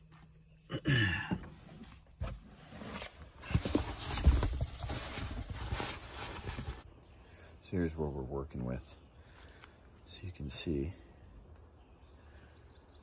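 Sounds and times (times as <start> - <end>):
rustling gear: 1.7 - 6.8.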